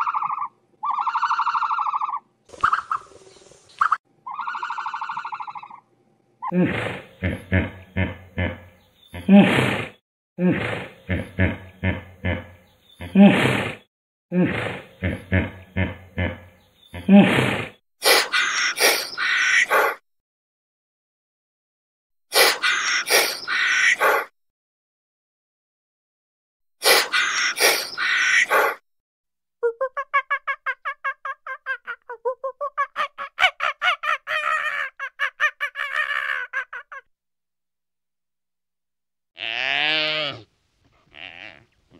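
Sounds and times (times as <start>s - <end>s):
bird calling in rapid notes: 0.0s - 3.2s, 3.8s - 5.8s
hoarse noisy animal call: 39.4s - 41.9s.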